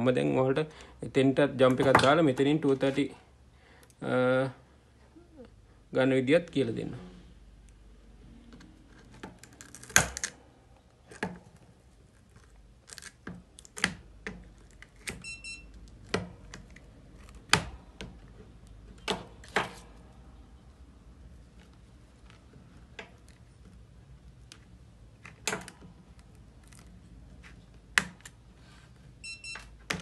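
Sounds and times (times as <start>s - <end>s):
high-pitched beep: 15.2s - 15.7s, 29.2s - 29.6s.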